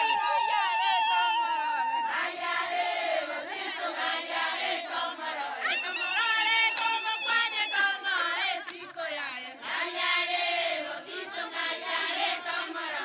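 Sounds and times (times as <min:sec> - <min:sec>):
crowd singing and chanting: 0:00.0 - 0:13.0.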